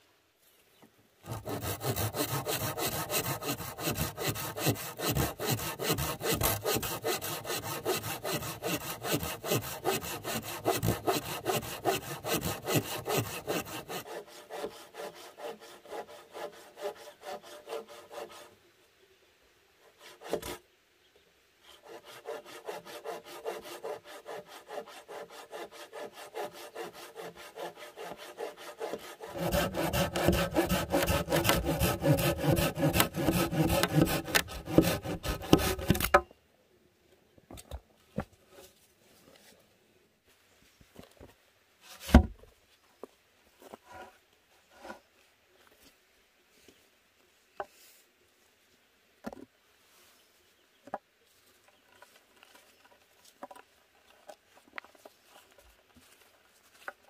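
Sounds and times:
hand saw cutting log: 0:01.2 - 0:18.5, 0:19.9 - 0:20.6, 0:21.7 - 0:36.2.

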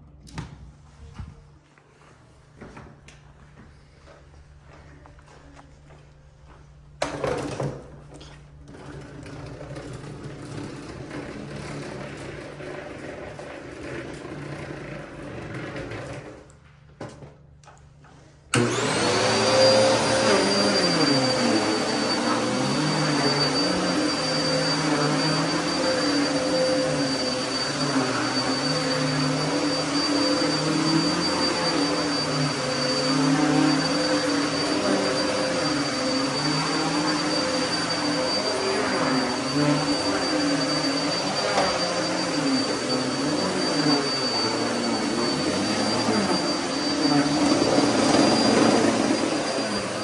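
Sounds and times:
upright vacuum cleaner running: 0:07.0 - 0:16.5, 0:18.5 - 0:50.0.

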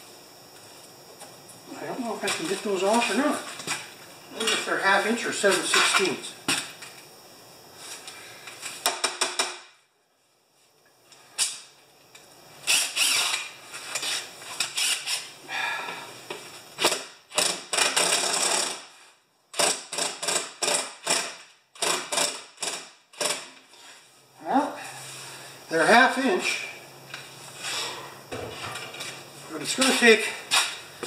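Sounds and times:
cordless drill bursts: 0:12.6 - 0:15.3, 0:16.8 - 0:18.8.

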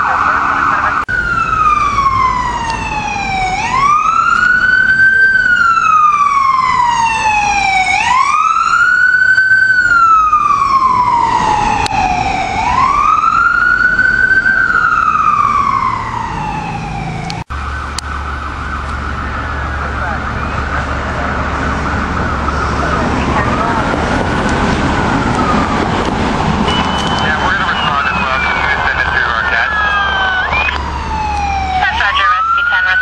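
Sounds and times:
emergency vehicle siren wailing: 0:00.0 - 0:33.0.

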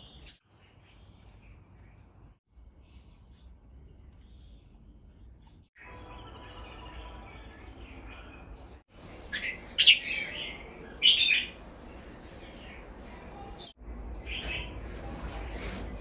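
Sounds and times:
bird chirping and singing: 0:00.0 - 0:02.4, 0:05.6 - 0:14.8.

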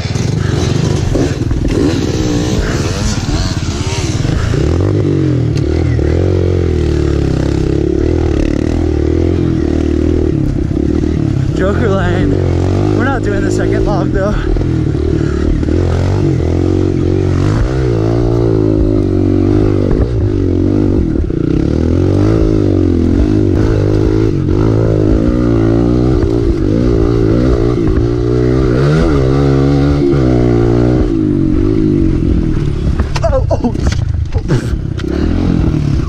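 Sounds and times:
dirt bike engine revving: 0:00.0 - 0:36.0.

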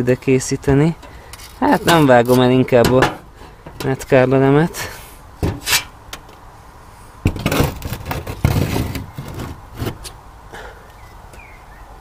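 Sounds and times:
machete scraping metal edge: 0:01.2 - 0:03.8, 0:04.8 - 0:06.0, 0:07.3 - 0:10.2.

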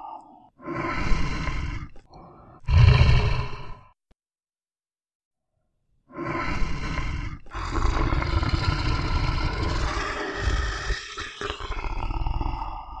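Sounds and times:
animal roars: 0:02.6 - 0:03.9, 0:06.2 - 0:13.0.

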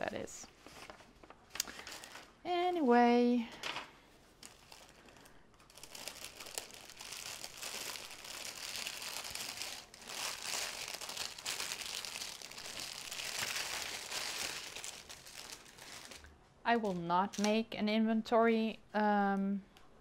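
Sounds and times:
plastic bag crinkling: 0:00.6 - 0:02.3, 0:03.7 - 0:16.3.

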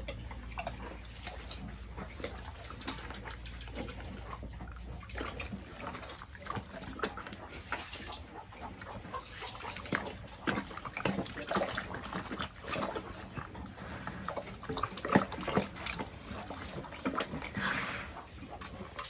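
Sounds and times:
pig munching and snuffling: 0:00.0 - 0:19.0.

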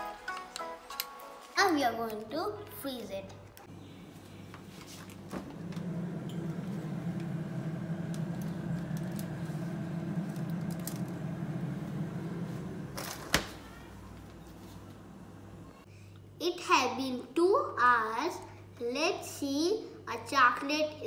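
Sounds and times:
refrigerator hum: 0:03.7 - 0:15.8.

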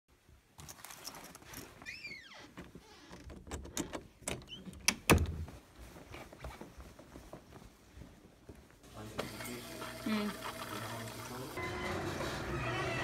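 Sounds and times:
handling rustling and clicks: 0:00.6 - 0:07.2.

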